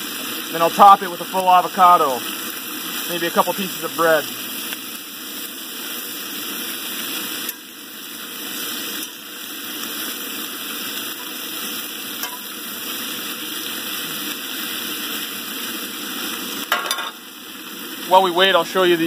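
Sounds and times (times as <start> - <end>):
vegetables sizzling in a skillet: 0.0 - 19.0
fork stirring in a skillet: 11.1 - 12.5.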